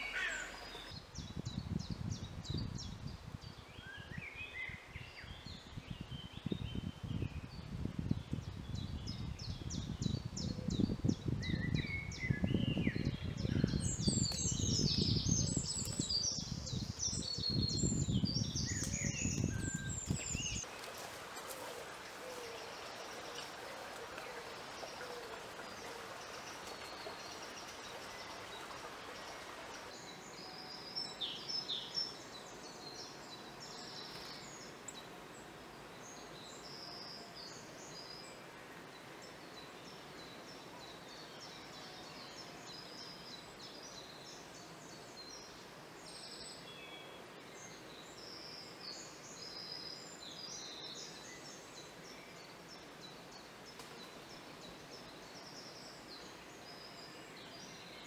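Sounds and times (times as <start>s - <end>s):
songbirds singing: 0.0s - 58.0s
faint hiss: 12.0s - 58.0s
footsteps rustling through undergrowth: 18.7s - 27.2s.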